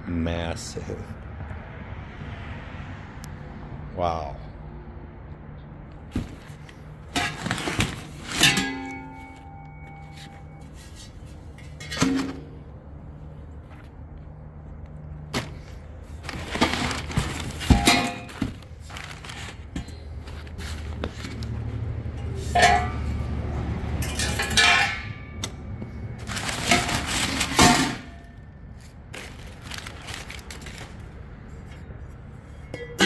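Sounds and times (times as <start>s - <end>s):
packing paper rustling: 7.2s - 8.4s, 15.5s - 21.5s, 26.2s - 27.7s, 28.7s - 31.6s.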